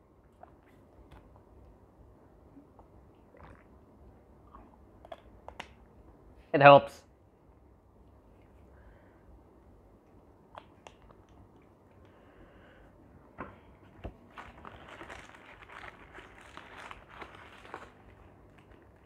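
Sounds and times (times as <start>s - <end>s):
paper wrapper crinkling: 14.2s - 19.0s.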